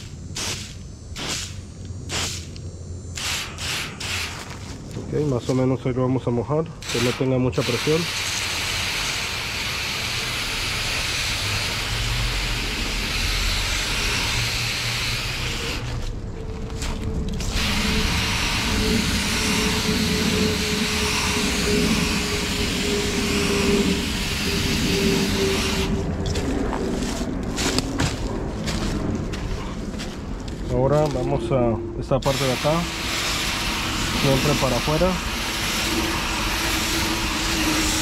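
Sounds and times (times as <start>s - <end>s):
water spray hissing on metal fins: 32.3s - 38.0s.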